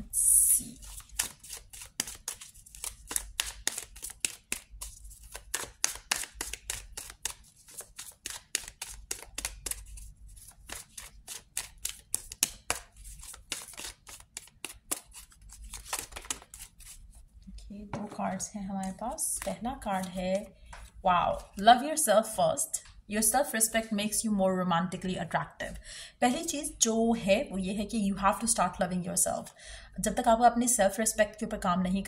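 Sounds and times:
cards being shuffled: 0.6s - 17.2s, 18.8s - 21.6s.

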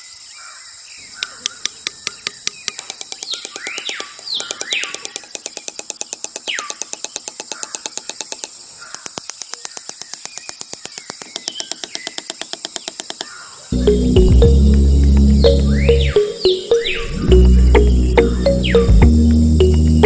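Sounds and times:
birds calling: 0.4s - 20.0s
rapid mechanical clicking: 1.2s - 13.5s.

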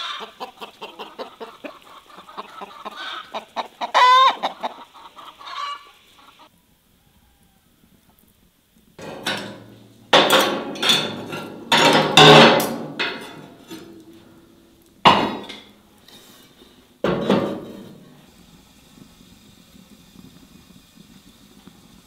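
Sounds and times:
cast-iron pan clanking down: 9.0s - 14.3s, 15.0s - 15.7s, 17.0s - 18.1s
metal plates clanking and scraping: 9.0s - 15.8s, 17.0s - 18.2s.

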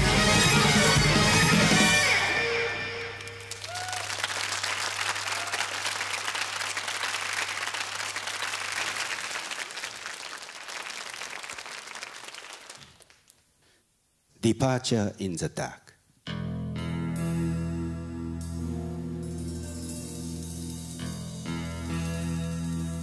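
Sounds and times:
band chord: 0.0s - 3.5s, 16.3s - 23.0s
audience applauding: 2.9s - 13.4s.

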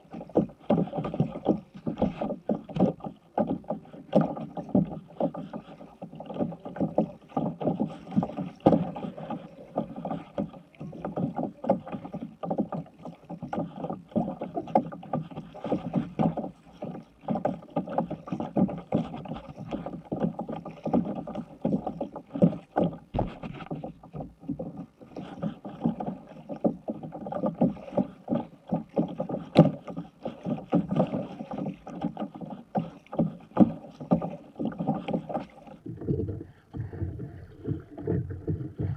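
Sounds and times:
paddle splashing: 0.0s - 38.9s
waves slapping hull: 0.0s - 38.9s.

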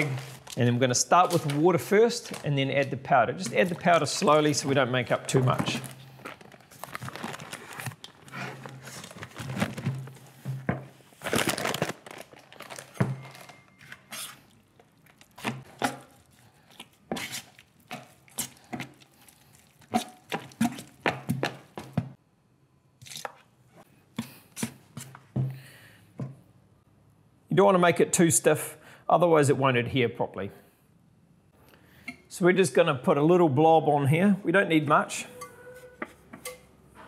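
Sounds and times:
spatula scraping bucket: 0.0s - 6.1s, 15.3s - 21.8s
paper sack rustling: 0.0s - 14.5s.

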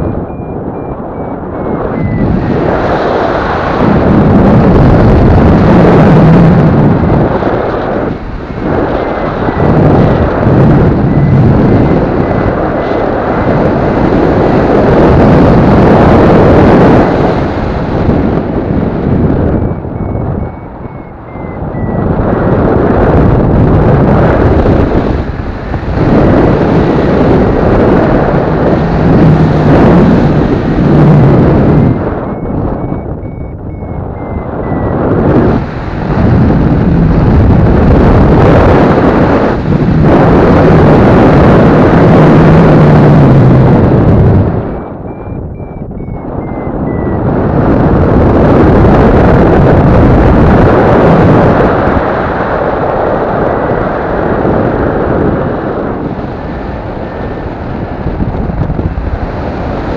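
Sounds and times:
variometer beeping: 0.0s - 4.0s, 8.3s - 24.9s, 28.8s - 39.5s, 43.0s - 50.6s
wind buffeting microphone: 0.0s - 59.9s.

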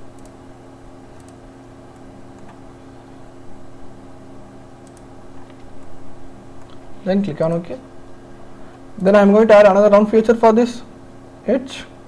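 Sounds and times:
steady background hum: 0.0s - 12.0s
computer mouse clicking: 0.1s - 0.4s, 1.1s - 2.6s, 4.8s - 6.0s, 6.6s - 6.8s.

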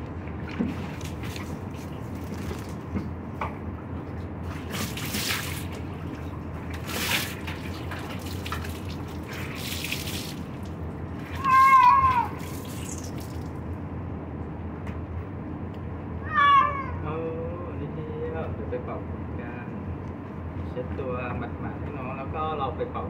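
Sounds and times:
water pouring and splashing: 0.3s - 3.1s, 4.4s - 13.6s
cat meowing loudly: 11.3s - 12.6s, 16.2s - 17.1s.

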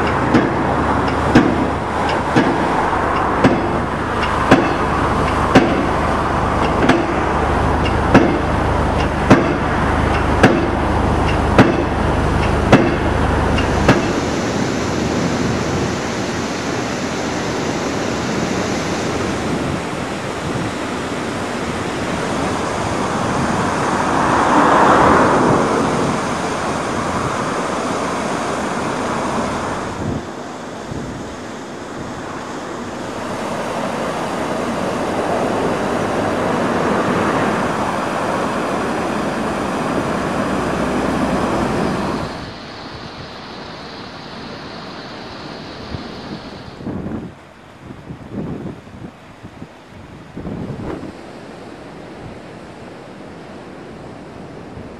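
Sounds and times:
hydraulic piling hammer striking: 0.0s - 14.6s
low engine rumble: 0.0s - 47.5s.

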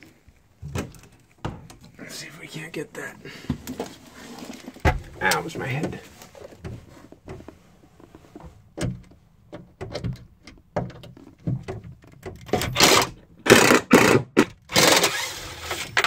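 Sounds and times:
impact driver hammering: 12.7s - 15.2s.

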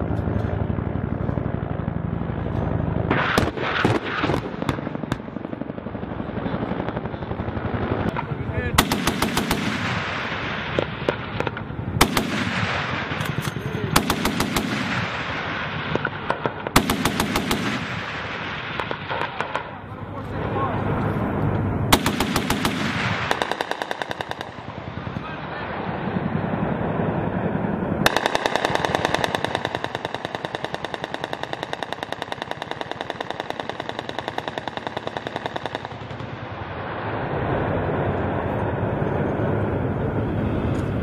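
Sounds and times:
helicopter rotor and engine hum: 0.0s - 41.0s
cannon firing rapid bursts: 3.0s - 19.8s, 21.9s - 25.9s, 28.0s - 36.7s.

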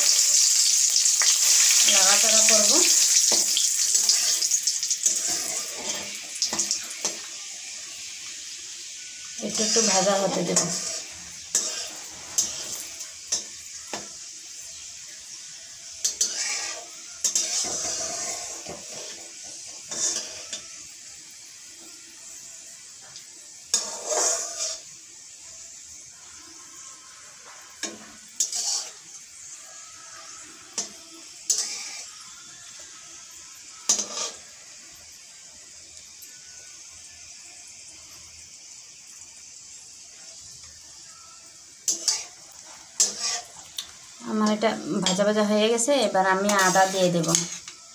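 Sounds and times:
metal spatula scraping metal pan: 0.0s - 7.3s, 9.4s - 14.9s, 15.8s - 20.9s, 23.7s - 24.9s, 26.3s - 32.8s, 33.8s - 34.6s, 41.8s - 47.9s
spices sizzling in hot oil: 0.0s - 47.9s.

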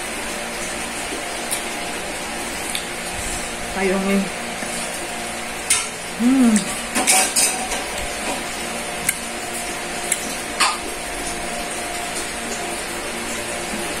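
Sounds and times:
short humming: 6.1s - 6.8s.

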